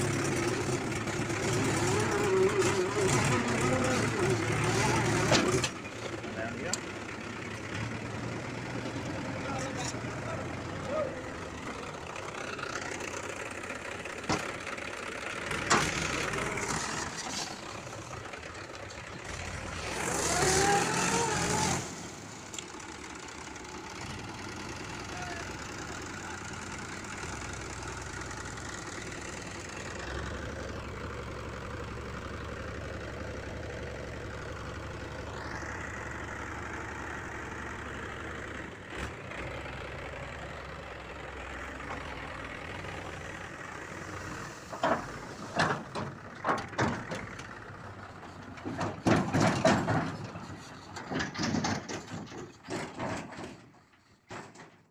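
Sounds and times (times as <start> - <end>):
diesel tractor engine running: 0.0 - 54.9
person's loud voice: 25.1 - 25.6.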